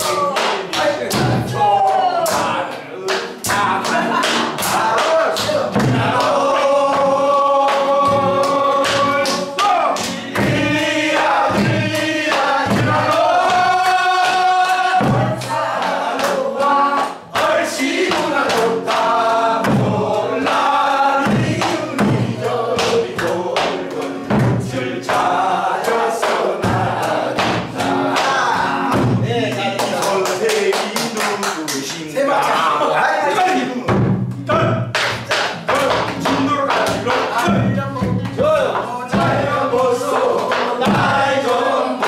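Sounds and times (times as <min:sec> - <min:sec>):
hand claps: 0:00.0 - 0:32.7, 0:34.2 - 0:42.0
group singing folk song: 0:00.0 - 0:42.0
nylon-string guitar: 0:32.6 - 0:42.0.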